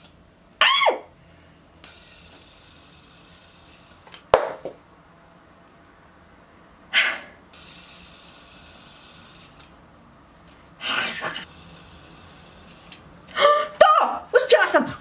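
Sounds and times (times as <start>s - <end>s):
person breathing: 6.9s - 7.4s.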